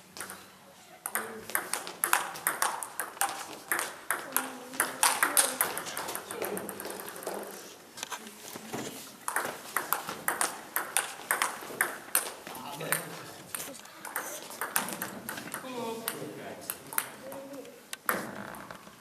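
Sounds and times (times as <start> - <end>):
table tennis ball clicking: 1.0 - 7.4, 9.3 - 12.3, 12.9 - 17.4.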